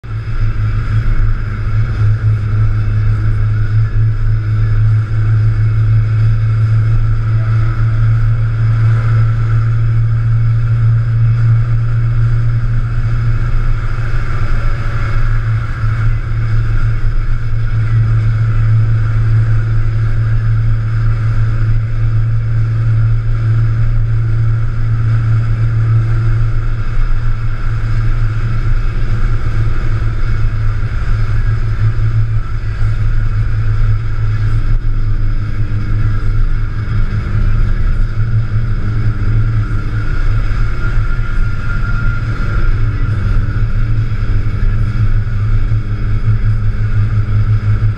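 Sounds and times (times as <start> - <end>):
car engine droning: 0.0 - 47.9
road and wind noise: 0.0 - 47.9.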